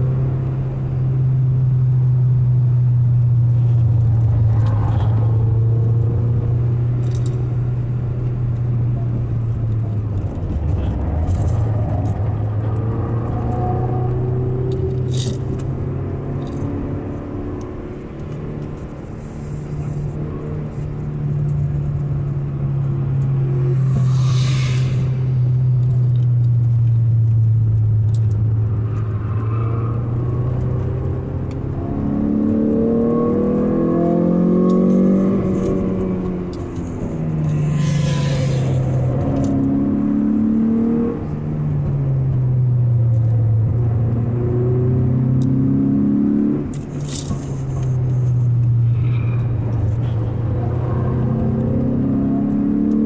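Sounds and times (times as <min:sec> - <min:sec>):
car engine revving: 0:00.0 - 0:41.8, 0:43.2 - 0:53.0
short rushing hiss: 0:23.8 - 0:25.8.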